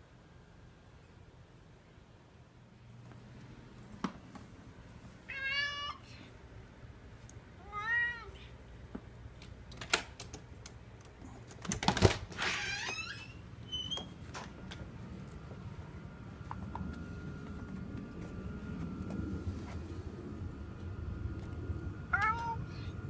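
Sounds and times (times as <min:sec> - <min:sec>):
cat meowing: 0:05.3 - 0:06.1, 0:07.6 - 0:08.5, 0:22.2 - 0:22.9.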